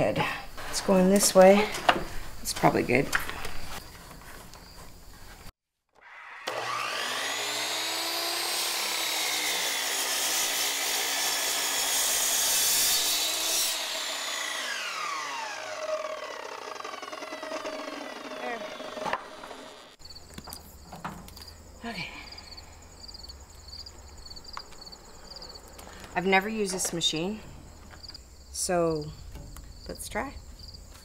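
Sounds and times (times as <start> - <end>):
miter saw cutting wood: 6.0 - 20.0
saw motor winding down: 6.0 - 20.0.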